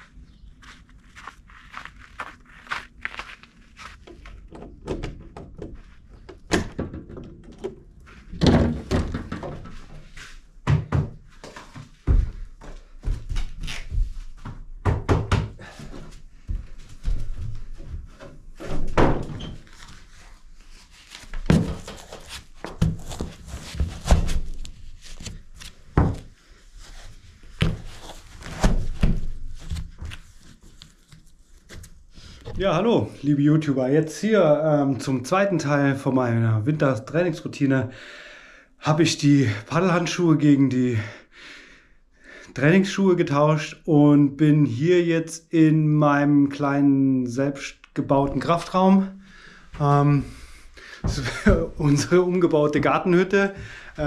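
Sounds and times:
irregular thuds and knocks: 4.0s - 19.6s, 21.3s - 24.6s, 25.9s - 26.3s, 27.5s - 30.2s, 51.0s - 51.8s.

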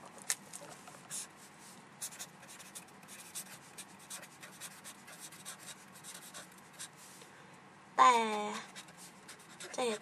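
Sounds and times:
marker pen scratching on paper: 2.0s - 7.0s, 8.6s - 10.0s.

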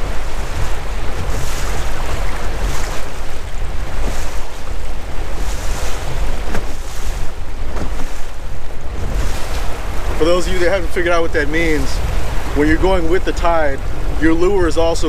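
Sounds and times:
boat engine drone: 0.0s - 15.0s
water washing past hull: 0.0s - 15.0s
wind noise on microphone: 0.0s - 15.0s.

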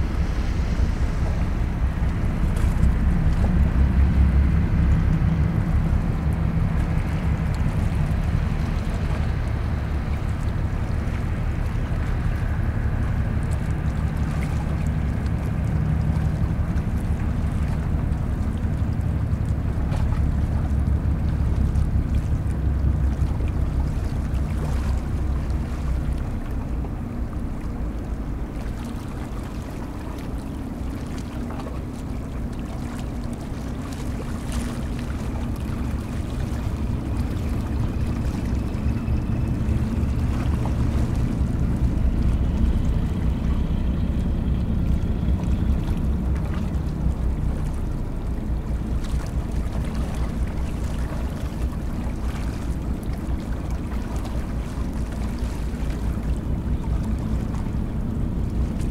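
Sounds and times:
diesel engine rumbling: 0.0s - 28.6s, 34.2s - 58.9s.

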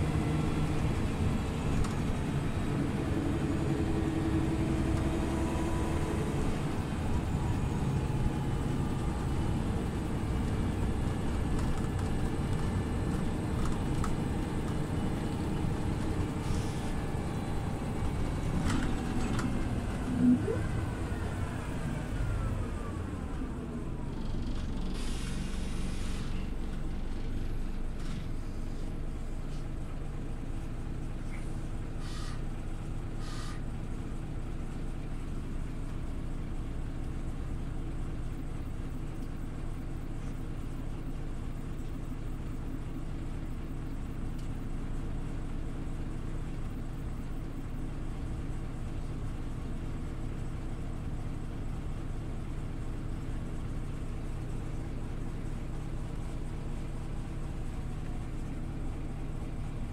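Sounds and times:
bus engine drone: 0.0s - 59.9s
brief air hisses: 24.9s - 26.5s, 32.0s - 32.4s, 33.2s - 33.6s.

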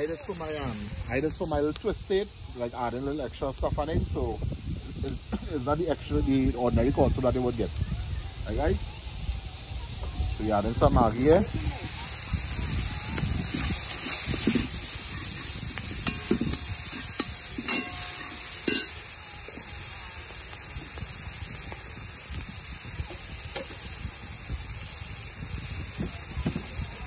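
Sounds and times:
vegetables sizzling in hot oil: 0.0s - 27.0s
metal spoon scraping a pot: 16.0s - 19.0s.

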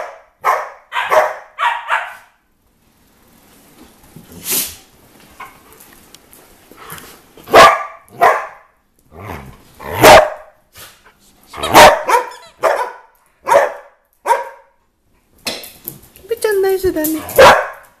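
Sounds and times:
dogs barking: 0.0s - 2.4s, 7.5s - 8.7s, 9.9s - 10.6s, 11.6s - 14.8s, 17.3s - 18.0s.

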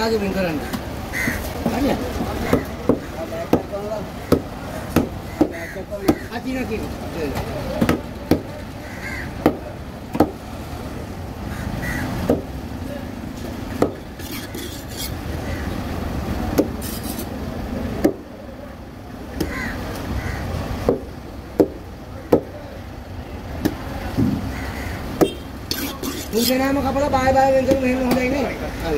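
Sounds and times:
background noise: 0.0s - 28.9s
knife chopping fish on wood: 2.4s - 3.7s, 4.3s - 6.2s, 13.8s - 15.1s, 16.5s - 17.3s.

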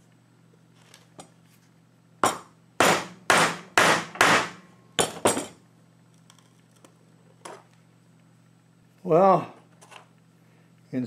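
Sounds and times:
hammer striking chisel: 2.2s - 5.2s.

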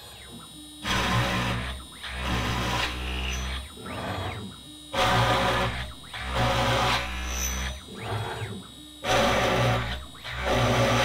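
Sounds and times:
stepper motors whining: 0.0s - 11.0s
router spindle cutting: 0.8s - 11.0s.

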